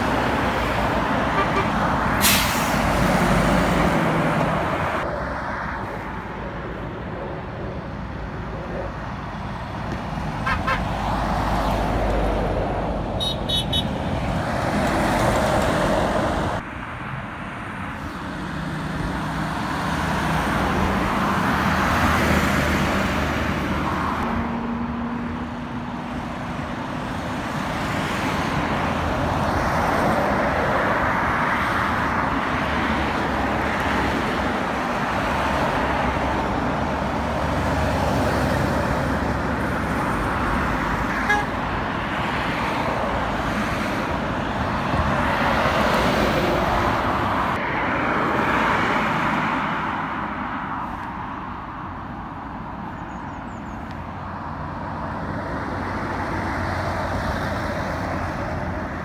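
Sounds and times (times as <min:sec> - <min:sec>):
lorry passing close by: 0:00.0 - 0:13.2
road traffic passing: 0:00.0 - 0:59.0.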